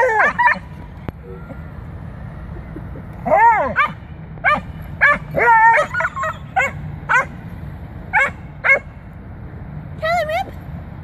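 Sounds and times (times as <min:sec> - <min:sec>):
dog yowls: 0:00.0 - 0:00.6, 0:05.0 - 0:07.2
dogs barking: 0:00.0 - 0:00.7, 0:03.3 - 0:07.4, 0:08.1 - 0:09.0.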